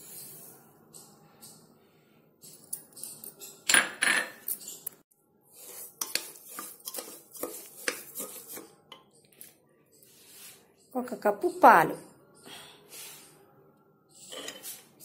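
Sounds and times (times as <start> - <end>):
steel spoon scraping a pot: 4.4 - 9.2, 14.1 - 15.0.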